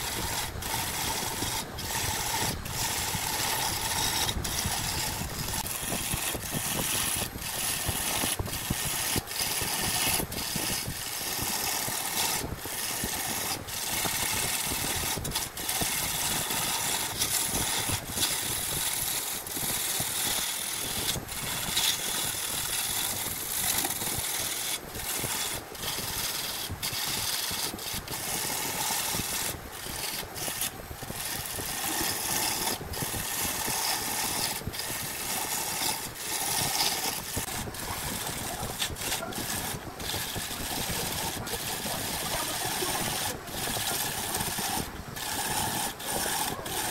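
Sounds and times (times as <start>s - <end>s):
lathe tool shaving wood: 0.0s - 46.9s.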